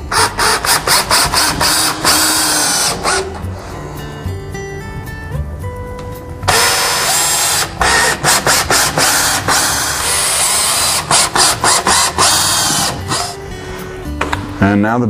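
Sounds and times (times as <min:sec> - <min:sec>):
cordless drill driving screws: 0:00.1 - 0:03.4, 0:06.5 - 0:13.4.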